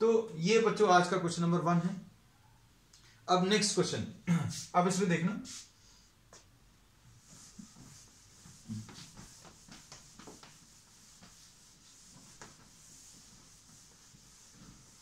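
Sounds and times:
cloth wiping a whiteboard: 0:04.5 - 0:06.4, 0:07.0 - 0:15.0.

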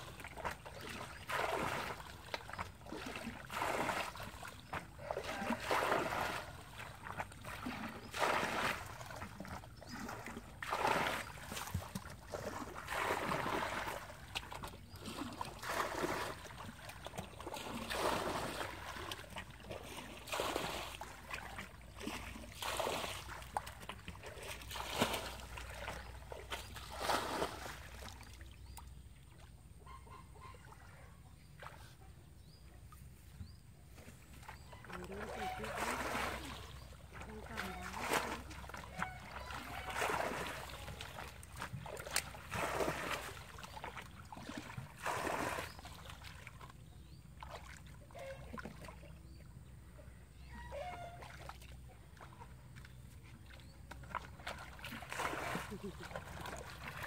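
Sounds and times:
water splashing strokes: 0:00.0 - 0:28.5, 0:33.9 - 0:49.2, 0:50.5 - 0:57.0.

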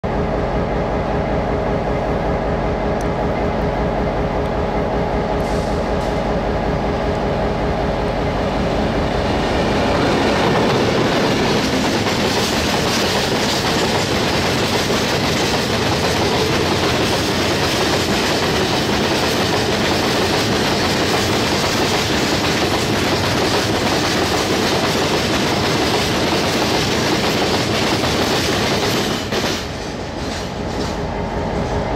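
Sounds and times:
freight train rumbling past: 0:00.0 - 0:31.9
train wheel clatter: 0:09.2 - 0:31.9.

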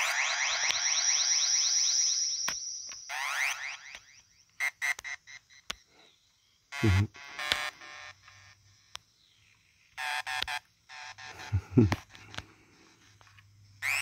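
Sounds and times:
synthesizer bleeps and swoops: 0:00.0 - 0:04.3.

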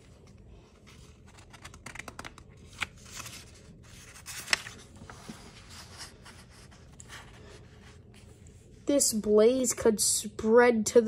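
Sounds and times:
book page turning: 0:00.0 - 0:08.8.

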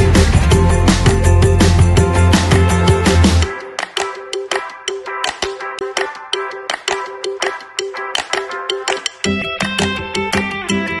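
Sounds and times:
low bass: 0:00.0 - 0:03.5.

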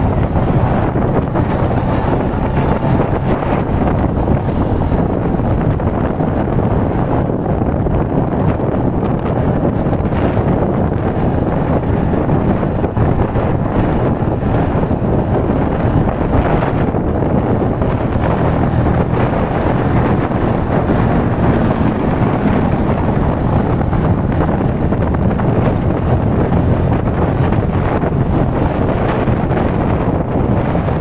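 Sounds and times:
motorcycle engine running: 0:00.0 - 0:31.0
wind rush on microphone: 0:00.0 - 0:31.0.

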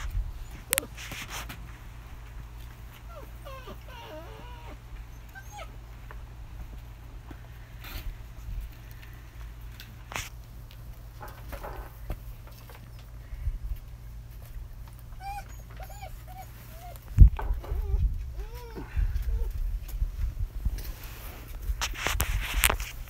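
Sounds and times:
puppies whining: 0:00.0 - 0:01.2, 0:02.6 - 0:06.1, 0:14.9 - 0:19.6.

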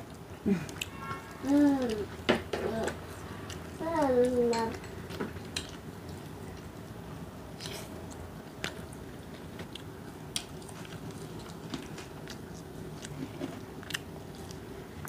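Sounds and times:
crunchy chewing: 0:07.6 - 0:15.0.

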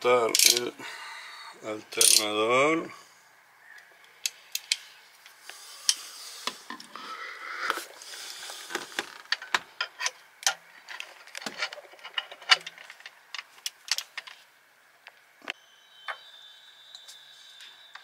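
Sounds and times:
hand tools clicking on metal: 0:00.3 - 0:00.7, 0:02.0 - 0:02.2
wrench scraping: 0:00.3 - 0:00.7, 0:02.0 - 0:02.3.

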